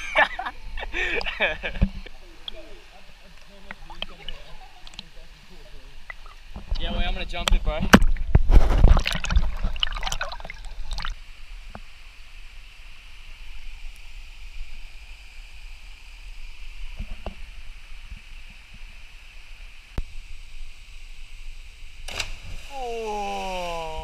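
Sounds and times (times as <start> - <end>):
steady high hiss: 0.0 - 8.9, 10.3 - 24.0
water splashing and sloshing: 1.7 - 11.9.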